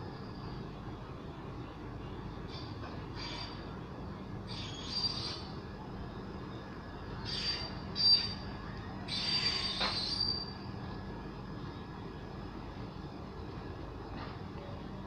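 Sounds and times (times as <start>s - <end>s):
train wheels squealing: 0.0s - 0.8s, 2.5s - 3.8s, 4.4s - 5.8s, 6.4s - 10.9s
train coaches rumbling: 0.0s - 15.0s.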